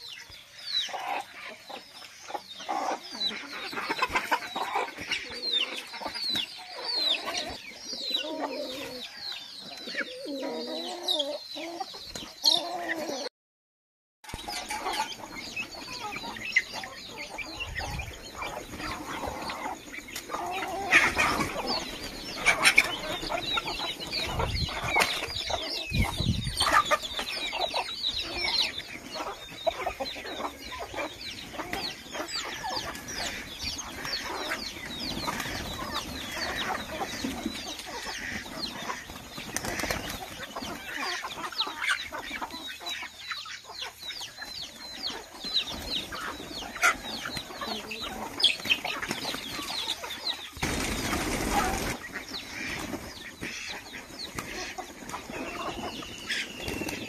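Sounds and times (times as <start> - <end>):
birds chirping and peeping: 0.0 - 13.3, 14.2 - 57.0
hens clucking: 0.0 - 13.3, 14.2 - 57.0
wings flapping: 32.6 - 37.0, 37.8 - 40.8, 50.5 - 57.0.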